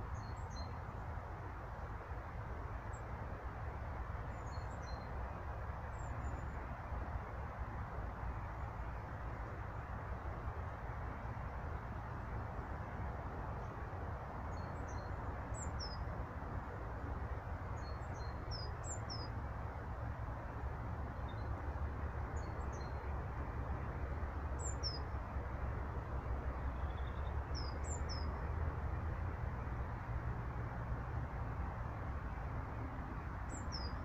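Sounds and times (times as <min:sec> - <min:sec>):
outdoor hiss and rumble: 0:00.0 - 0:34.0
songbird chirping: 0:26.6 - 0:28.5.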